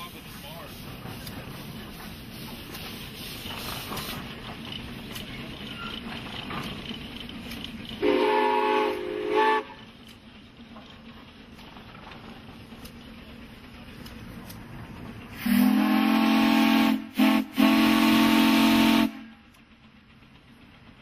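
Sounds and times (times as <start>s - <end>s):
steam whistle blast: 8.0s - 9.8s, 15.4s - 19.3s.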